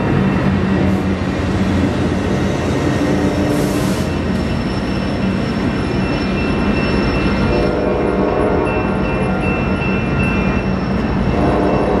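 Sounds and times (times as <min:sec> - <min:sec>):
diesel locomotive passing: 0:00.0 - 0:12.0
train wheels rumbling: 0:00.0 - 0:12.0
high wheel squeal: 0:03.6 - 0:12.0.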